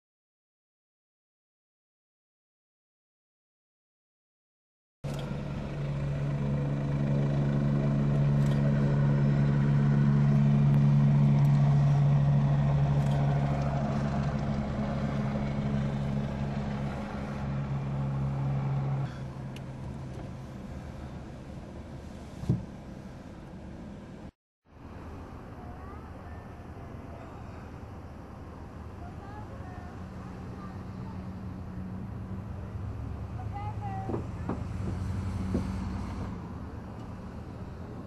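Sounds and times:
helicopter rotor drone: 5.1s - 21.8s, 25.6s - 36.4s.

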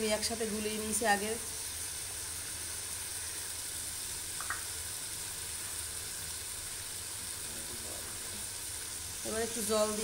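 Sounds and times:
paste sizzling in hot oil: 0.0s - 10.0s.

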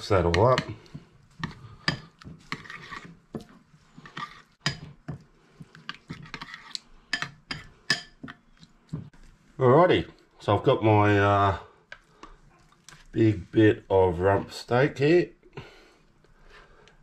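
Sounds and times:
metal spoon stirring liquid: 0.0s - 9.5s
spoon clinking against ceramic bowl: 7.1s - 8.4s.

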